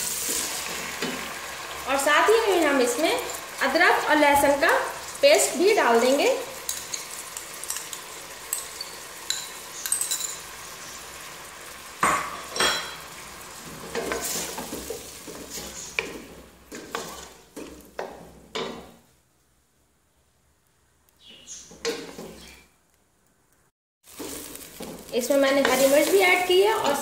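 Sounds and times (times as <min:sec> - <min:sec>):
food sizzling in a pot: 0:00.0 - 0:19.1, 0:24.0 - 0:27.0
wooden spatula stirring: 0:13.6 - 0:18.9, 0:24.1 - 0:27.0.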